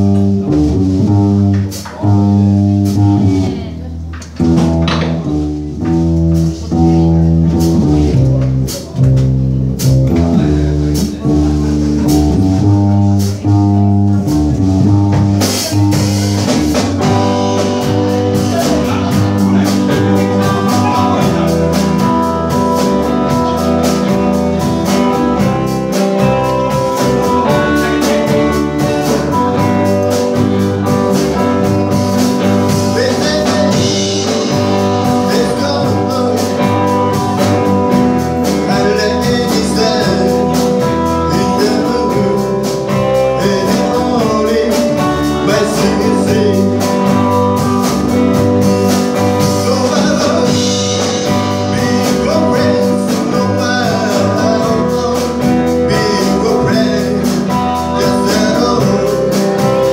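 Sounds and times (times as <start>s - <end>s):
drums: 0.0s - 59.9s
electric guitar: 0.0s - 59.9s
upright double bass: 0.0s - 59.9s
man singing lead: 9.8s - 59.9s.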